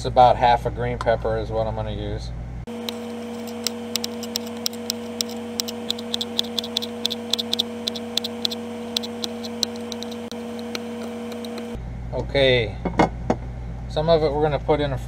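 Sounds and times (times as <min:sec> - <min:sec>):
background hum: 0:01.9 - 0:15.0
knife tapping cutting board: 0:02.8 - 0:11.8.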